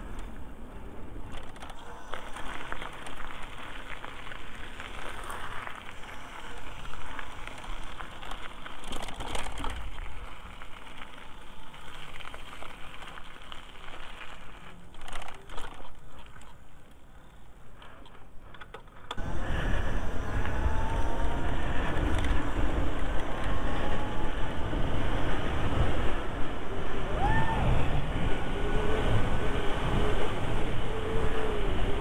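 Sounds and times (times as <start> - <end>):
gritty rattle: 1.3 - 19.2
wind on microphone: 19.2 - 32.0.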